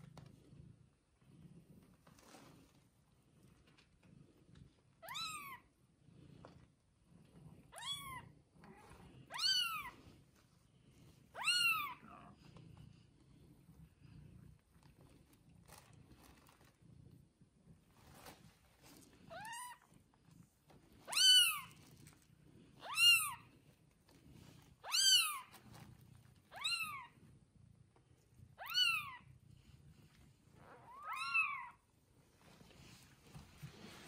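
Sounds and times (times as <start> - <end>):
newborn kitten mewing: 11.4 - 12.1, 28.6 - 29.3, 30.8 - 31.8.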